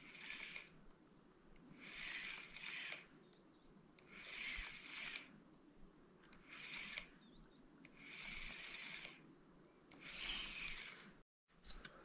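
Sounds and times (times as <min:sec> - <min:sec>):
fishing reel gears whirring: 0:00.0 - 0:00.7, 0:01.8 - 0:03.1, 0:04.1 - 0:05.3, 0:06.4 - 0:07.1, 0:08.0 - 0:09.2, 0:10.0 - 0:11.1.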